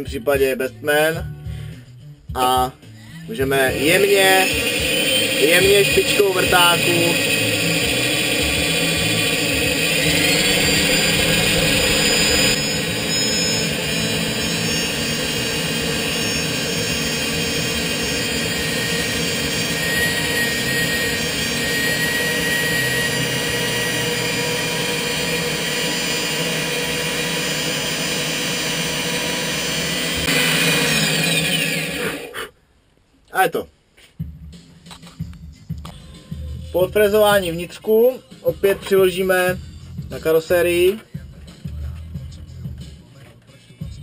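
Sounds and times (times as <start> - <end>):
drill press milling foam: 3.5 - 32.4.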